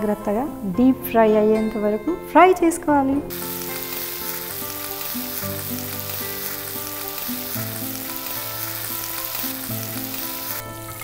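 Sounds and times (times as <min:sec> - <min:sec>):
soft background music: 0:00.0 - 0:11.0
chicken deep-frying in hot oil: 0:03.3 - 0:11.0.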